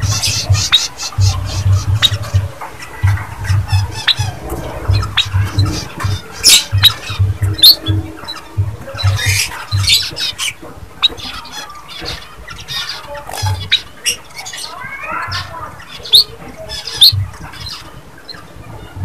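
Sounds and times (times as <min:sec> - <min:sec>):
dull low thumps: 0:00.0 - 0:11.4, 0:15.3 - 0:18.1
bird chipping calls: 0:00.0 - 0:19.0
squeaky bird chattering: 0:00.0 - 0:19.0.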